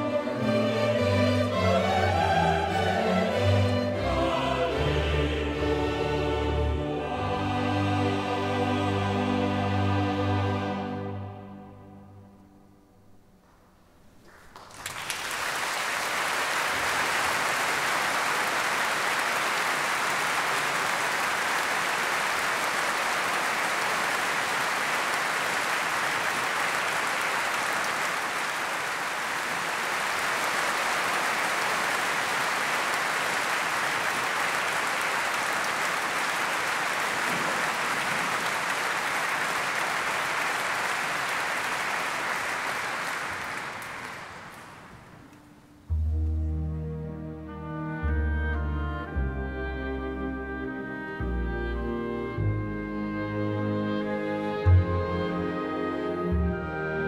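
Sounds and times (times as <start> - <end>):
audience applauding: 14.2 - 45.4.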